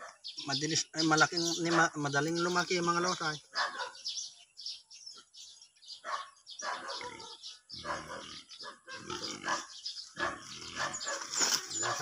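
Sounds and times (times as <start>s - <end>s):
animal rough calls: 6.8s - 12.0s.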